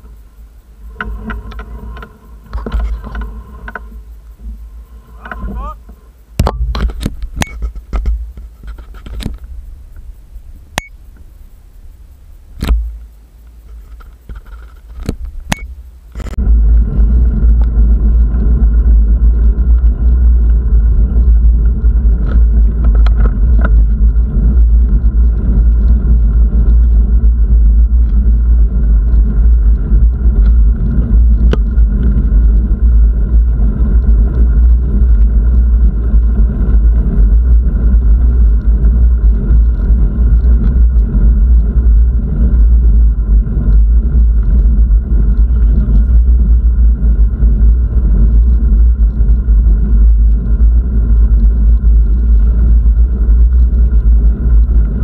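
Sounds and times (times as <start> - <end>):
sharp clicks and knocks: 5.2 - 10.1, 12.6 - 16.4
wind buffeting microphone: 13.8 - 55.0.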